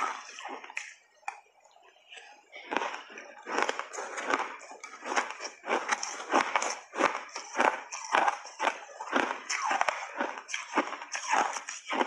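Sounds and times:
chewing crunchy shaved ice: 0:02.5 - 0:12.0.

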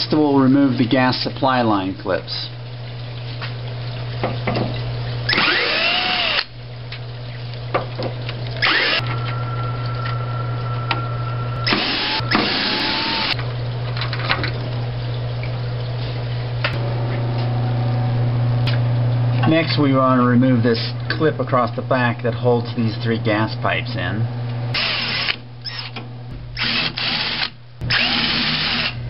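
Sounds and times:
steady low hum: 0:00.0 - 0:29.0
cordless drill running: 0:05.3 - 0:06.5, 0:08.6 - 0:09.0, 0:11.6 - 0:13.4, 0:24.8 - 0:25.9, 0:26.6 - 0:29.0.

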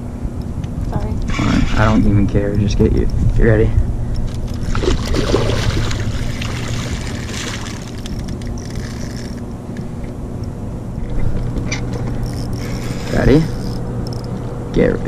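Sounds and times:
steady low hum: 0:00.0 - 0:15.0
fish splashing in water: 0:04.5 - 0:09.4.

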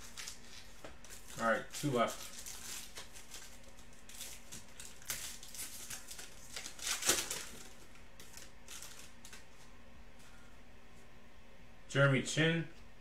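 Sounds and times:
foil wrapper crinkling: 0:00.0 - 0:09.7.

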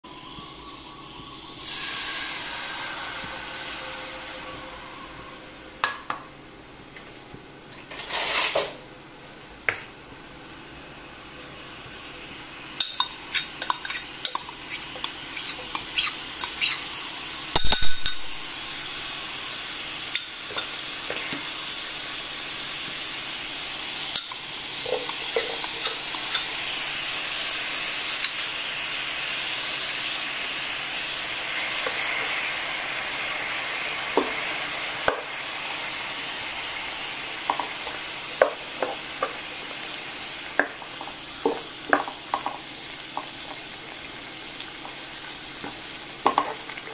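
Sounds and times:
water hissing in a hot wok: 0:00.0 - 0:07.3, 0:10.2 - 0:46.9
spoon clinking on ceramic bowl: 0:12.8 - 0:16.8, 0:17.6 - 0:18.3
wooden spatula knocking on pan: 0:41.4 - 0:42.6.

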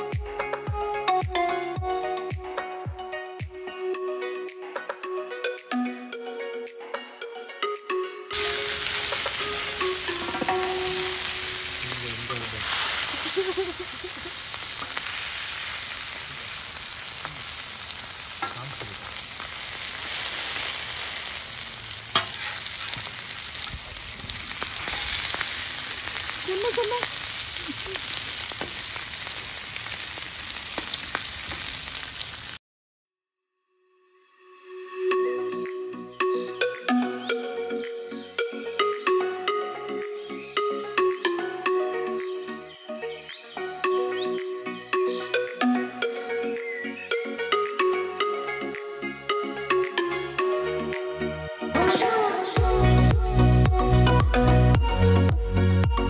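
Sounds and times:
oil sizzling on griddle: 0:08.3 - 0:32.6.

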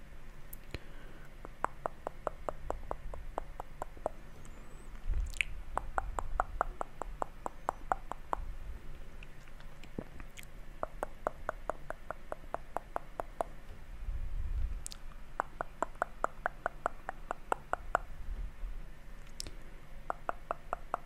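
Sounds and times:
wet mouth clicks: 0:01.4 - 0:08.5, 0:09.2 - 0:13.6, 0:14.8 - 0:18.1, 0:19.2 - 0:21.0.

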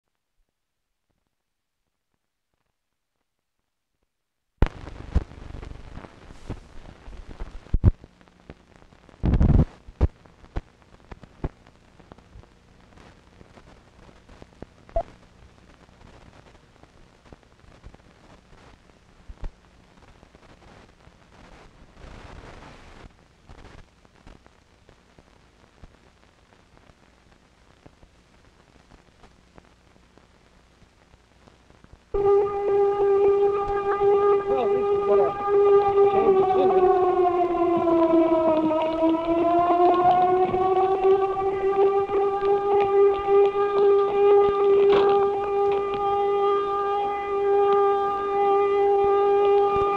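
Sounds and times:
film soundtrack crackles and pops: 0:00.0 - 0:49.9
faint hiss: 0:04.6 - 0:37.6
steady low hum: 0:04.6 - 0:49.9.

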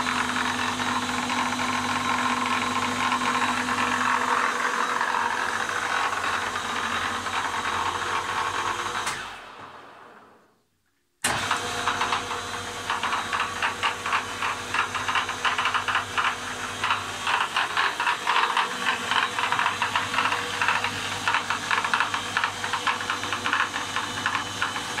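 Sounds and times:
lathe humming: 0:00.0 - 0:08.9, 0:11.9 - 0:25.0
lathe knocking: 0:12.9 - 0:25.0.

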